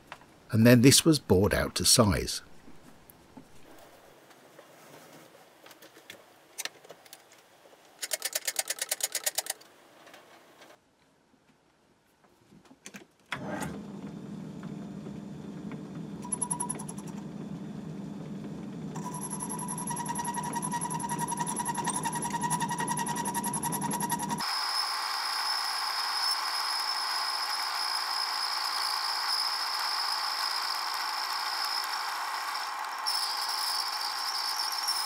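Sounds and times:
lathe running with low hum: 14.6s - 35.0s
high whine of cutting: 19.0s - 35.0s.

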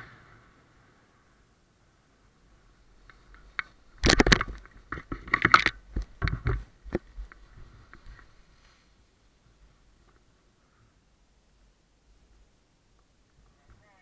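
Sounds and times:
paraglider landing in scrub: 0.0s - 1.2s.

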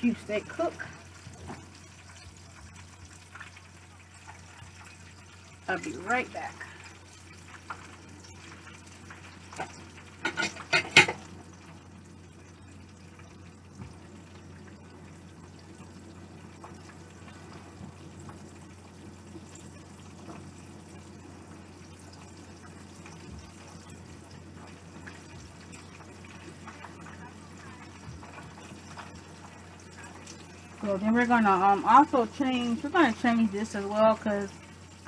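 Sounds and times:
steak sizzling in oil: 0.0s - 35.0s.

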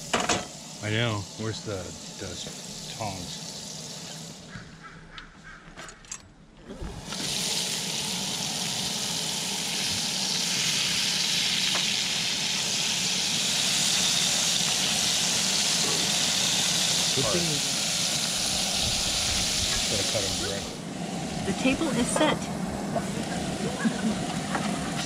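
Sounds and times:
fish sizzling in hot oil: 0.0s - 4.6s, 7.0s - 22.4s.

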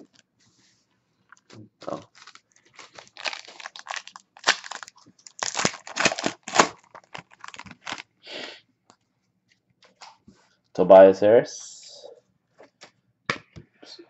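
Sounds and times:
foil wrapper crinkling: 1.4s - 8.1s.

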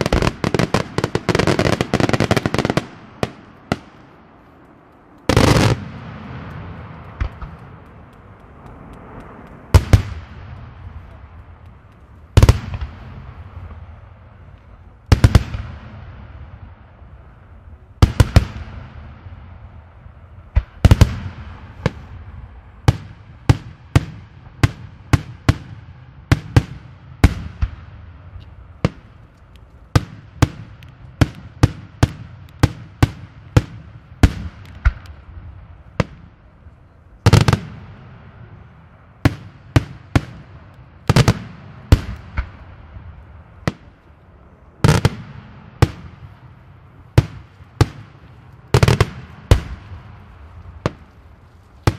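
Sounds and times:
firework bangs with echo: 5.3s - 7.8s, 9.1s - 11.4s, 12.3s - 14.0s, 15.1s - 16.9s, 18.0s - 19.7s, 20.5s - 28.0s, 39.2s - 42.9s, 47.2s - 51.2s.

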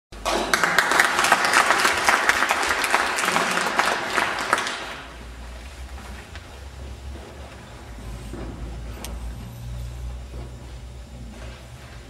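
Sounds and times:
audience applauding: 0.2s - 5.3s.

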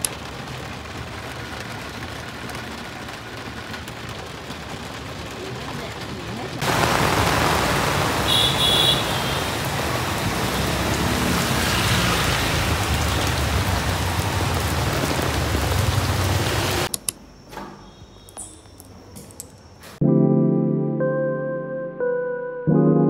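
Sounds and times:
rain on wet pavement: 0.0s - 16.9s
motor scooters passing: 0.2s - 16.9s
faint clicks: 16.9s - 17.2s.

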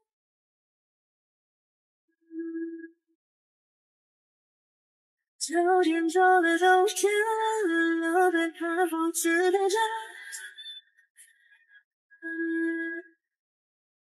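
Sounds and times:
woman singing: 5.4s - 10.7s, 12.2s - 13.1s.

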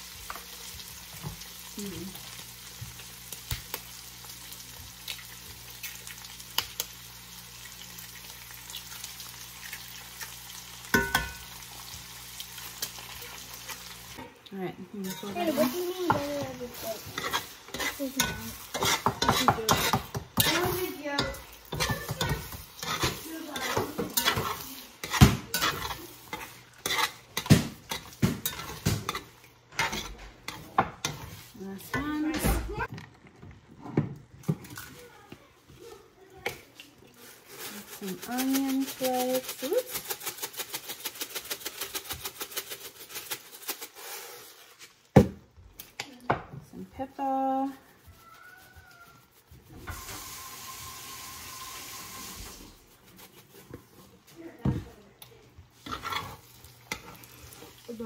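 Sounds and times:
frying sizzle: 0.0s - 46.1s, 46.7s - 58.0s
fork scraping skillet: 10.2s - 11.9s, 12.5s - 32.3s, 55.7s - 58.0s.

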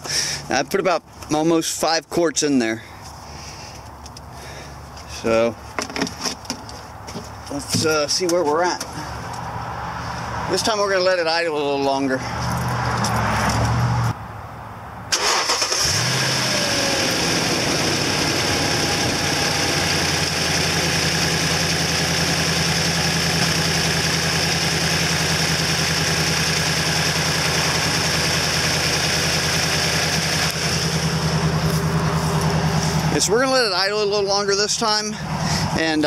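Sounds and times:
car engine idling: 15.2s - 36.0s.

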